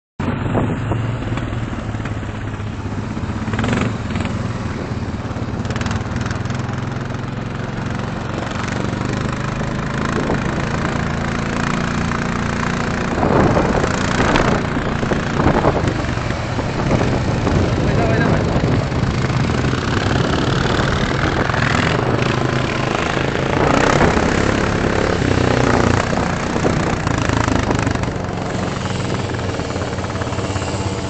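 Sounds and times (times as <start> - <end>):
atv engines revving: 0.2 - 31.0.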